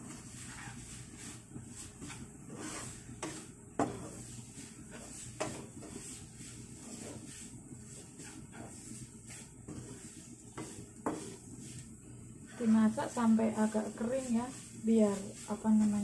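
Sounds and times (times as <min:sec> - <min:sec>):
spatula scraping a frying pan: 0:00.0 - 0:16.0
spatula knocking against pan: 0:03.2 - 0:04.1, 0:05.4 - 0:05.9, 0:10.5 - 0:11.4.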